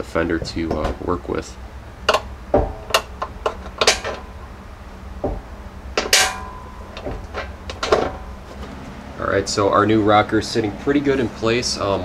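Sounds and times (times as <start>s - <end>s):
metal clatter: 2.1s - 4.6s, 5.2s - 8.8s.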